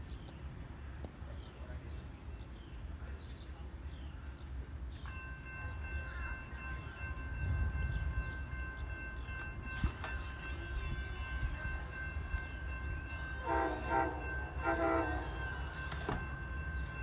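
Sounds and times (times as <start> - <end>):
train rumble: 0.0 - 17.0
train horn chord: 9.7 - 17.0.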